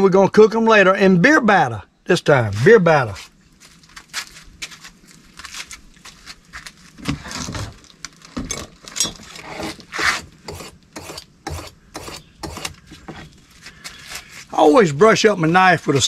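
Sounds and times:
knife scraping sharpening stone: 0:09.4 - 0:12.7.

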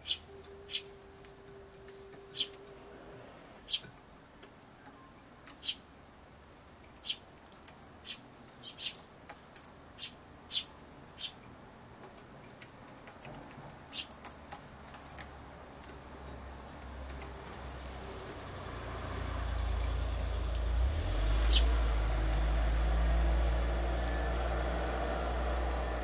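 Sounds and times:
sparrows chirping: 0:00.0 - 0:01.0, 0:02.2 - 0:02.6, 0:03.6 - 0:03.9, 0:05.4 - 0:05.8, 0:06.9 - 0:07.2, 0:08.0 - 0:11.4, 0:13.3 - 0:26.0
fledgling begging call: 0:00.0 - 0:02.9.

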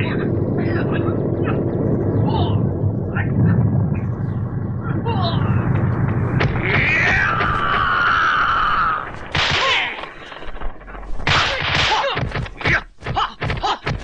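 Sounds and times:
slapping punch impacts: 0:09.3 - 0:09.9, 0:11.2 - 0:14.0.

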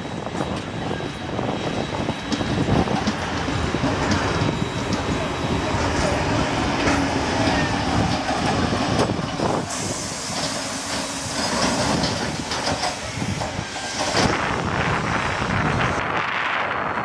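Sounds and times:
train wheels knocking over rail joints: 0:02.2 - 0:14.5
steam hissing: 0:08.5 - 0:15.4.

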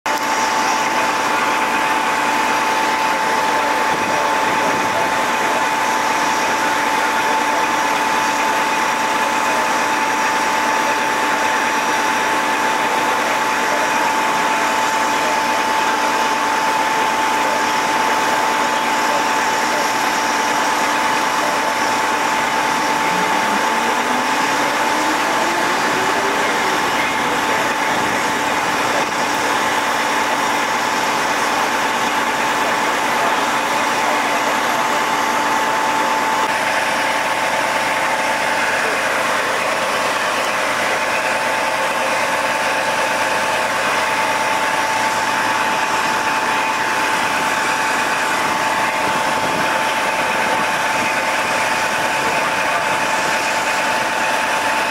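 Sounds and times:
engine idling: 0:00.1 - 0:54.9
high whine: 0:00.1 - 0:54.9
rising engine pitch: 0:20.9 - 0:29.6.

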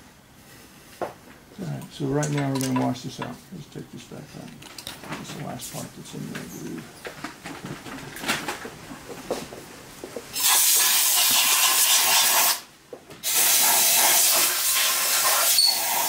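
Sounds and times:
pressurised spray hissing: 0:10.4 - 0:16.0.

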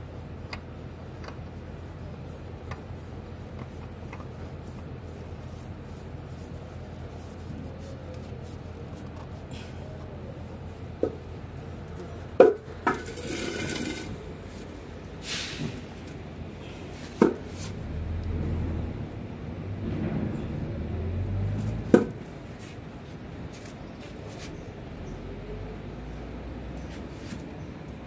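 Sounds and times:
oil filter scraping and clicking: 0:12.0 - 0:14.2.

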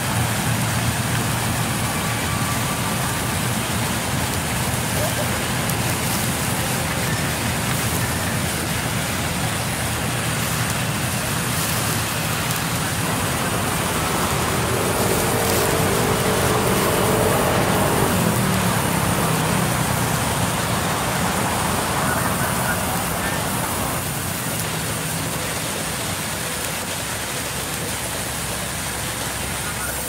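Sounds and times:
bandsaw mill humming: 0:00.0 - 0:24.2
blade whine cutting log: 0:05.6 - 0:22.0.

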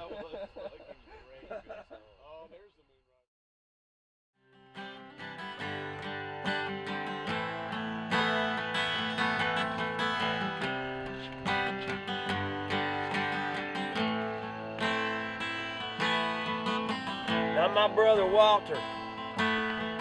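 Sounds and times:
acoustic guitar strumming chords: 0:04.4 - 0:20.0.

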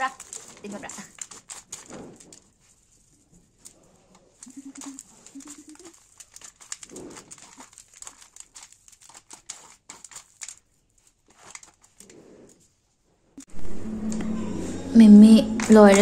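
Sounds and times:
dry noodles crackling and rustling: 0:00.0 - 0:12.8.

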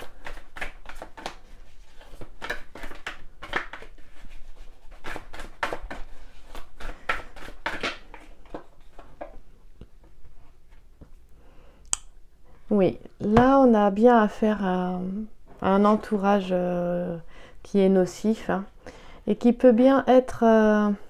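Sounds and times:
cards being shuffled: 0:00.0 - 0:09.4.

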